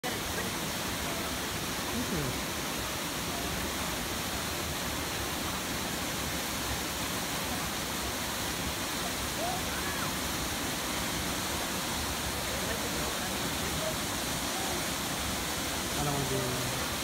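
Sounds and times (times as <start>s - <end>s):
waterfall and stream rushing: 0.0s - 17.0s.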